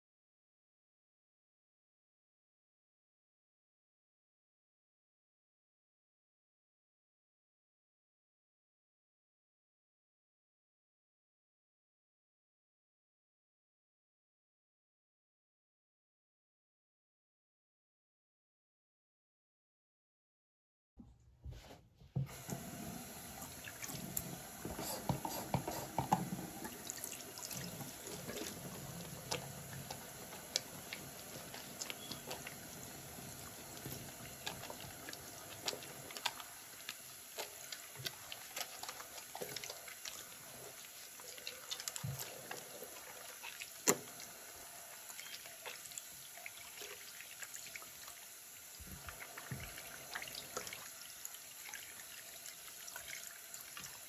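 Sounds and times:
hands splashing and rinsing: 22.3s - 48.1s
faucet water running into sink: 22.3s - 54.0s.

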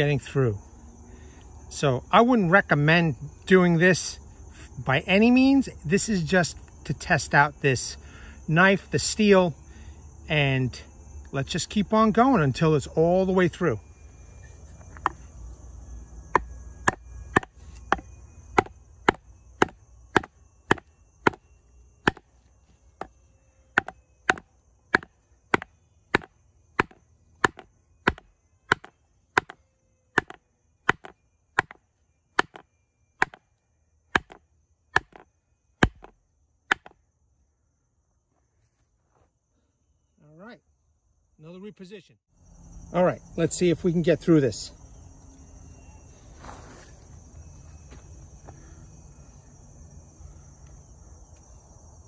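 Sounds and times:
wooden baton striking knife spine: 16.4s - 18.0s, 18.6s - 21.4s, 22.0s - 22.2s, 23.8s - 24.4s, 25.0s - 29.6s, 30.2s - 31.8s, 32.4s - 32.6s, 33.2s - 33.4s, 34.2s - 34.4s, 35.0s - 35.2s, 35.8s - 36.1s, 36.7s - 36.9s.

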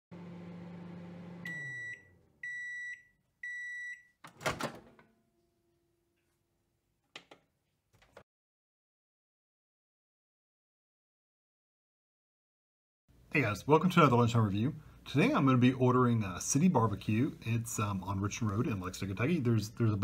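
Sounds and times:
microwave oven humming: 0.1s - 2.7s
microwave high beeps: 1.4s - 4.2s
microwave door opening clunk: 4.3s - 5.1s.

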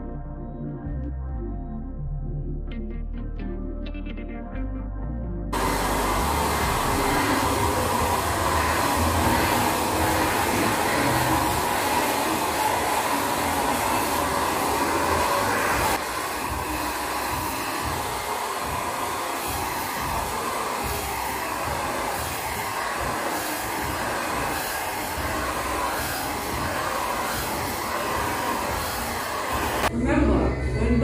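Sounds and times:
handheld fan motor running: 5.6s - 29.9s.

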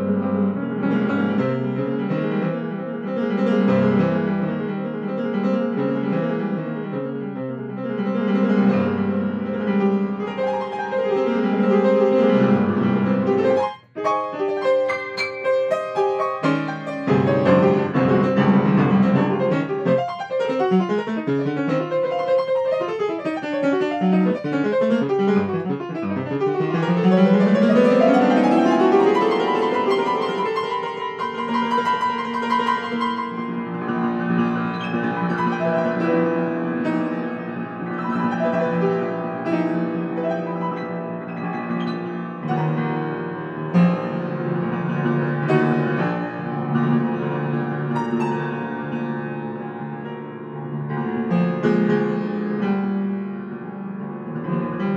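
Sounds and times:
grand piano improvisation: 0.0s - 54.9s.

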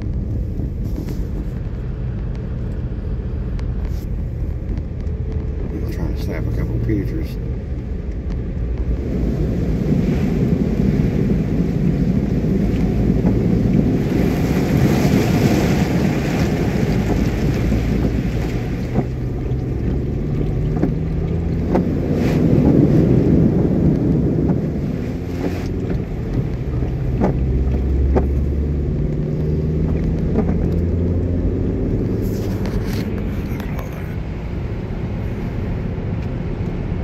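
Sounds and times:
engine and tyres droning: 0.0s - 37.0s
water splashing against car: 0.0s - 37.0s.

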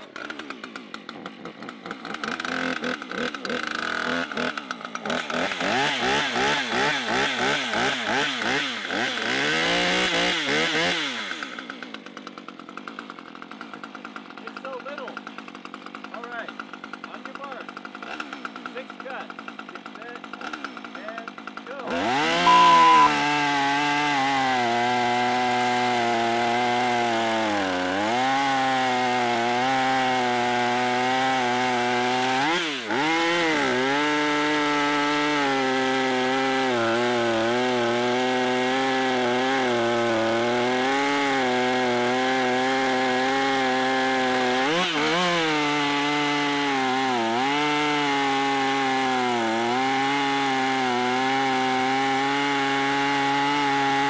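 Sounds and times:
chainsaw cutting through log: 0.0s - 54.0s
short beep: 22.4s - 23.2s.

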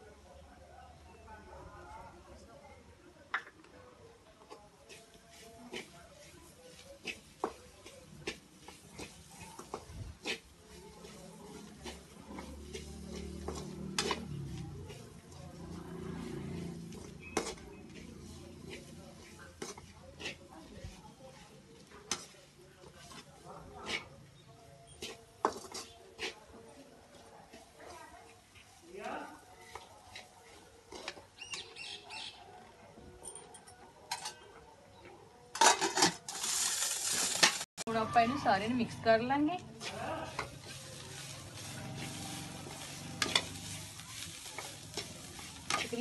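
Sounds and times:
spatula scraping thick paste: 4.8s - 29.4s
steel utensils clattering: 35.6s - 37.6s, 40.3s - 46.0s.

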